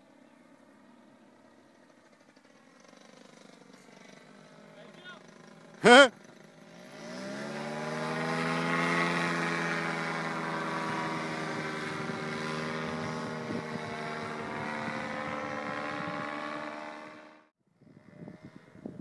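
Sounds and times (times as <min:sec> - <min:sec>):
paramotor engine and propeller: 0:00.0 - 0:19.0
faint wind noise on microphone: 0:10.8 - 0:16.5, 0:17.7 - 0:19.0.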